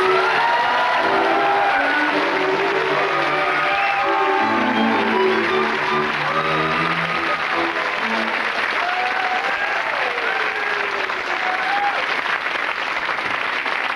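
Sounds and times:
closing theme music: 0:00.0 - 0:09.5
audience applauding: 0:00.0 - 0:13.9.

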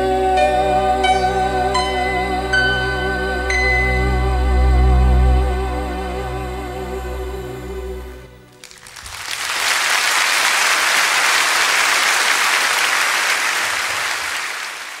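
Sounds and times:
audience applause: 0:08.5 - 0:15.0.

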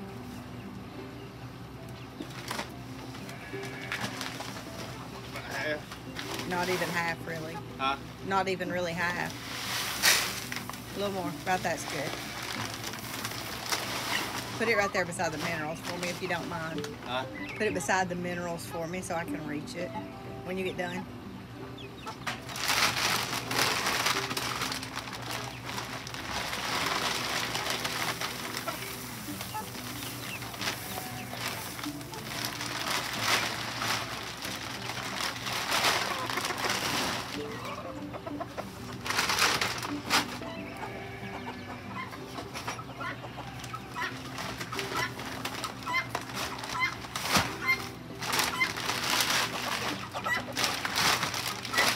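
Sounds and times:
chickens clucking: 0:00.0 - 0:51.9
seed shifting in bag: 0:02.2 - 0:07.6, 0:08.3 - 0:16.8, 0:22.4 - 0:37.8, 0:38.9 - 0:40.5, 0:43.9 - 0:51.9
plastic bag crinkling: 0:02.3 - 0:07.6, 0:08.3 - 0:16.9, 0:22.4 - 0:37.8, 0:38.9 - 0:40.5, 0:44.0 - 0:51.9.

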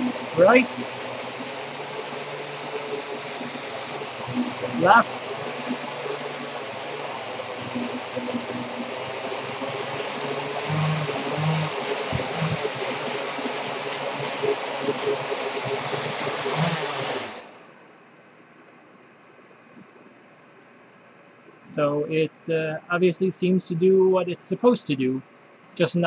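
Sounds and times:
quadcopter motors whining: 0:00.0 - 0:17.6.

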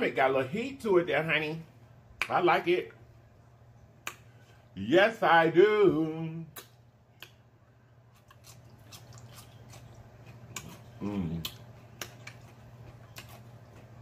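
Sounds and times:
steady low hum: 0:00.0 - 0:14.0
wet chewing and smacking: 0:08.1 - 0:14.0
person humming: 0:11.0 - 0:11.6.

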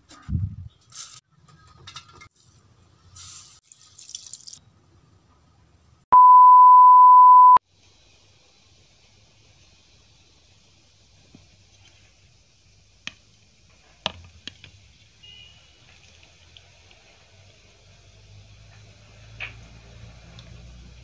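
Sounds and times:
electronic beep: 0:06.2 - 0:07.6.

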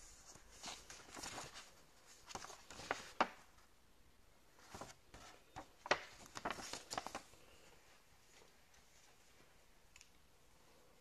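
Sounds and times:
paper rustling: 0:00.0 - 0:03.7, 0:04.5 - 0:09.5.

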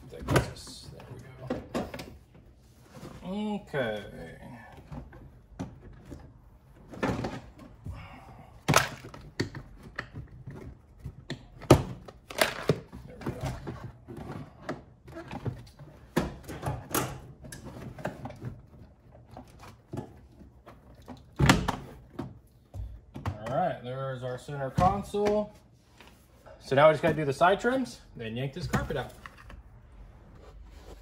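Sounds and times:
plastic console knocking and clicking: 0:00.0 - 0:02.5, 0:04.8 - 0:07.8, 0:08.6 - 0:23.6.

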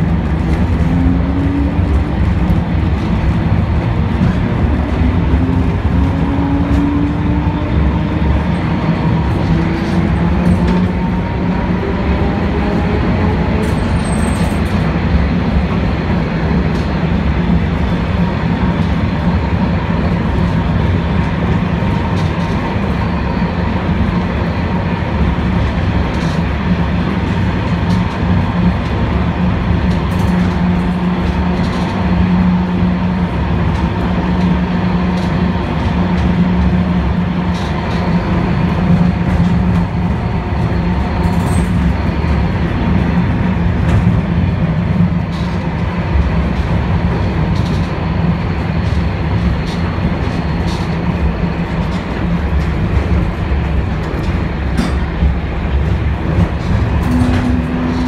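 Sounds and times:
tram wheels rumbling on rail: 0:00.0 - 0:58.0.

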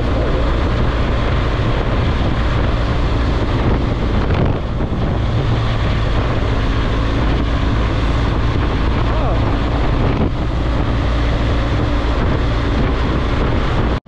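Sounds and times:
motorcycle engine cruising: 0:00.0 - 0:14.0
wind buffeting microphone: 0:00.0 - 0:14.0.

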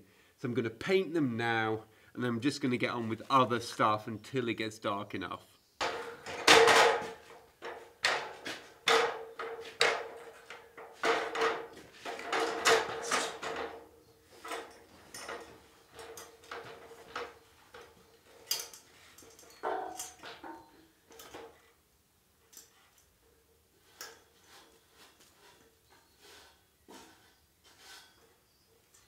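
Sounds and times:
metal ladder clattering and knocking: 0:05.8 - 0:21.6.

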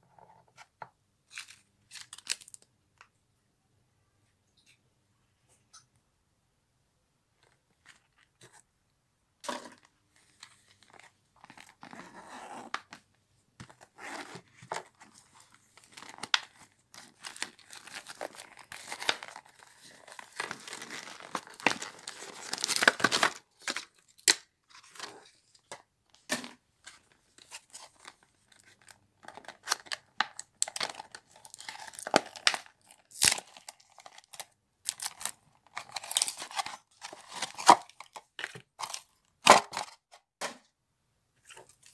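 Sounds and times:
plastic packaging crinkling: 0:01.3 - 0:02.7, 0:14.2 - 0:24.4, 0:27.4 - 0:40.0.

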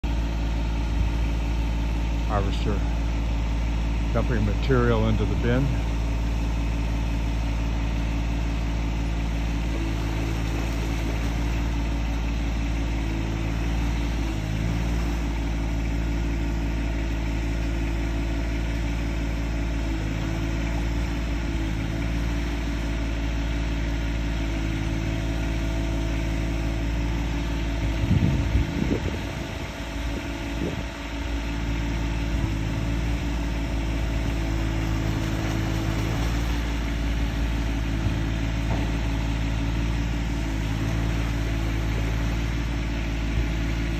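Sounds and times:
engine running steadily: 0:00.0 - 0:43.9
thump and rumble: 0:37.9 - 0:39.3.

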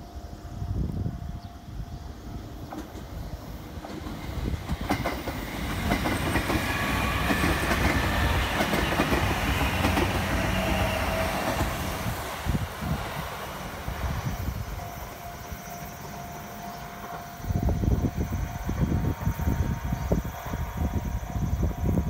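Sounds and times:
train high whine: 0:00.0 - 0:22.0
train rumble: 0:00.0 - 0:22.0
train wheels clacking over rail joints: 0:03.8 - 0:12.0.

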